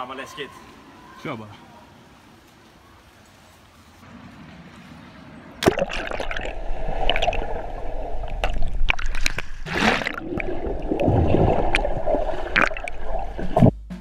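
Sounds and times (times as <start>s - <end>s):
rush of bubbles: 5.6s - 13.6s
muffled underwater bubbling: 5.6s - 13.7s.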